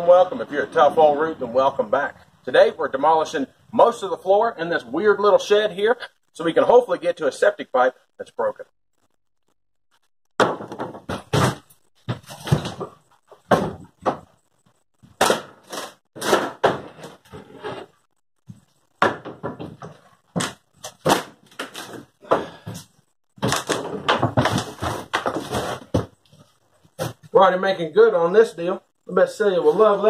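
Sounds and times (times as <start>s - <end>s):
wooden boards banging and clattering: 10.4s - 14.4s, 15.1s - 17.7s, 19.0s - 26.4s.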